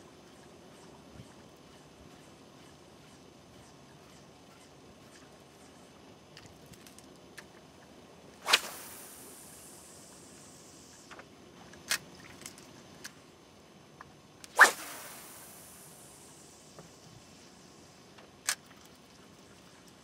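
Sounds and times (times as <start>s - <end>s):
fishing rod swishing through air: 8.4s - 10.2s, 14.5s - 16.3s.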